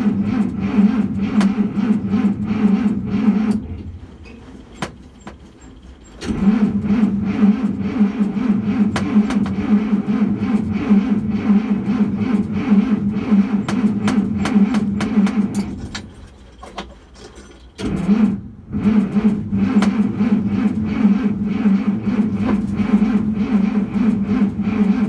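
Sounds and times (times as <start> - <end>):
starter motor cranking engine: 0.0 - 25.0.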